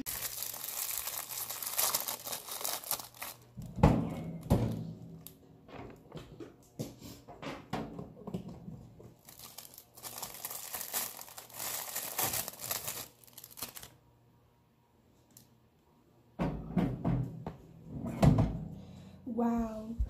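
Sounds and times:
foil wrapper tearing and crinkling: 0:00.0 - 0:03.6, 0:09.2 - 0:14.0
knocks and thumps: 0:16.4 - 0:18.7.

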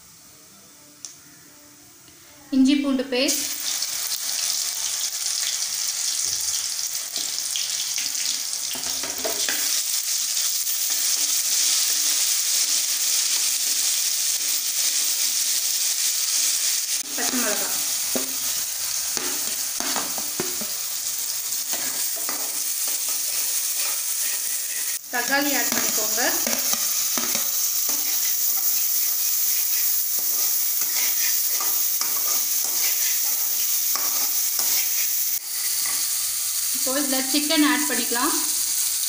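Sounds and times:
oil sizzling in a pan: 0:02.6 - 0:39.0
spatula scraping a pan: 0:21.7 - 0:25.0, 0:25.6 - 0:36.0.

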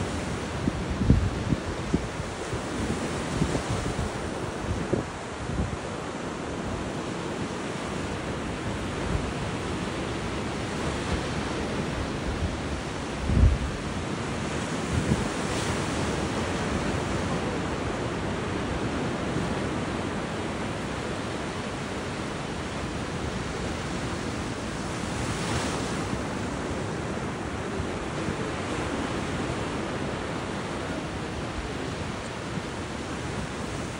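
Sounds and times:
wind buffeting microphone: 0:00.0 - 0:06.4, 0:10.9 - 0:20.3
surf breaking on a beach: 0:00.0 - 0:33.9.

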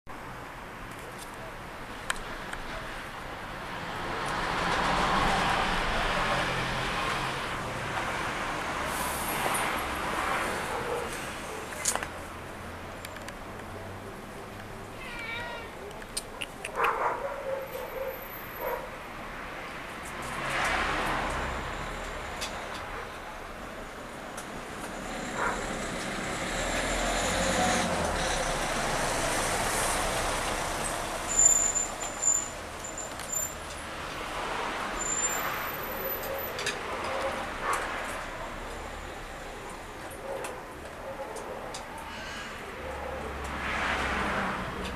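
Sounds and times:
vehicle passing: 0:03.6 - 0:13.0, 0:16.8 - 0:23.1, 0:24.6 - 0:31.4, 0:42.0 - 0:44.9
high thin squeal: 0:31.2 - 0:33.6.

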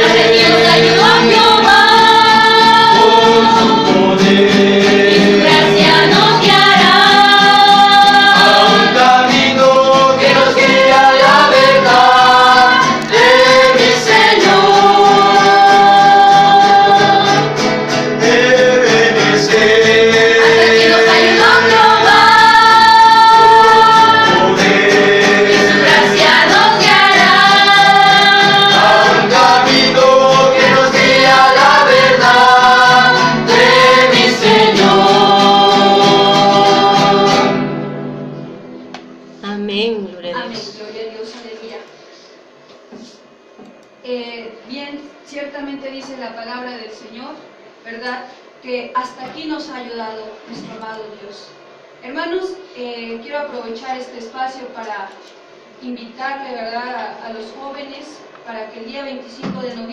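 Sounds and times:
group singing worship song: 0:00.0 - 0:38.2
strummed acoustic guitars: 0:00.0 - 0:39.4.

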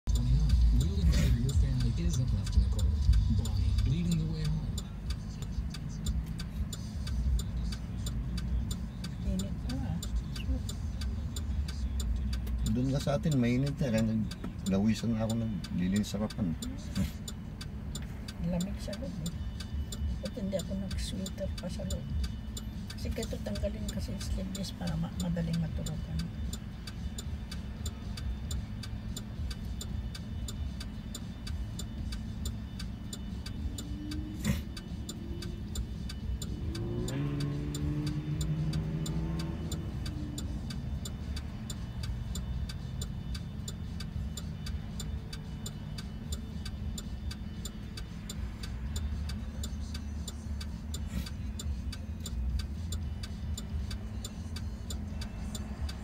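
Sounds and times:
turn signal ticking: 0:00.0 - 0:56.0
car engine idling: 0:00.1 - 0:56.0
vehicle passing: 0:31.4 - 0:56.0.

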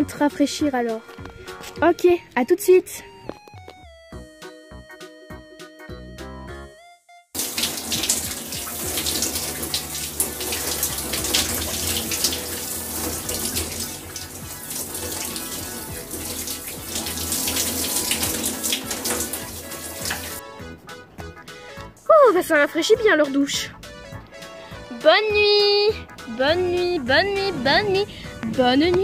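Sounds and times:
shower running: 0:07.4 - 0:20.4.

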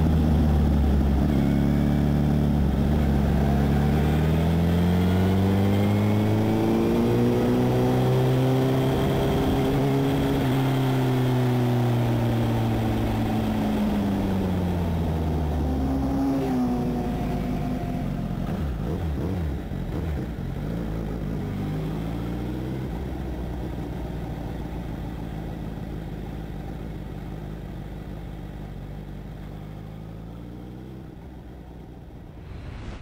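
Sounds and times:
motorcycle engine: 0:00.0 - 0:33.0
wind rush over microphone: 0:32.3 - 0:33.0.

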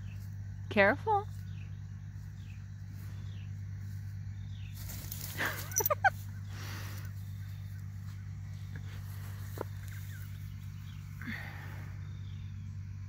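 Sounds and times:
steady low hum: 0:00.0 - 0:13.0
rustle: 0:02.9 - 0:11.7.

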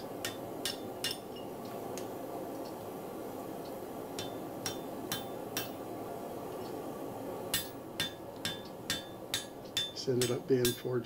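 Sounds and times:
hammer striking hot steel: 0:00.0 - 0:02.1, 0:03.7 - 0:05.9, 0:07.5 - 0:11.0.

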